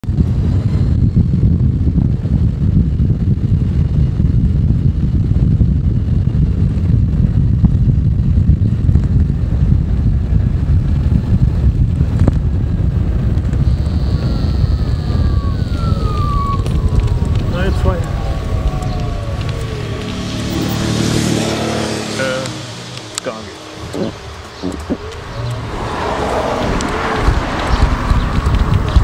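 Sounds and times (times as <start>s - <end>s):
wind buffeting microphone: 0.0s - 29.0s
electric motor whine: 12.3s - 29.0s.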